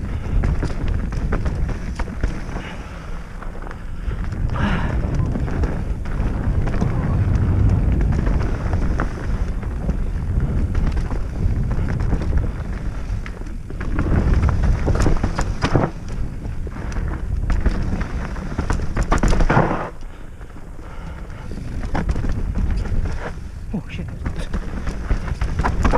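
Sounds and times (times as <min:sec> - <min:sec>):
bike knocking and rattling: 0:00.0 - 0:25.9
tyres running over dirt: 0:00.0 - 0:25.9
wind rumbling on microphone: 0:00.0 - 0:25.9.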